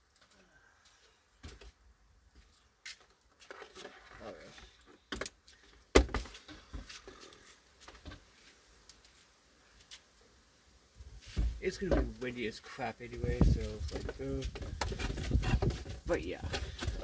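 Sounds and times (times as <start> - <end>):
knocks on cardboard box: 5.9 - 6.3
cardboard box rustling: 13.6 - 17.0.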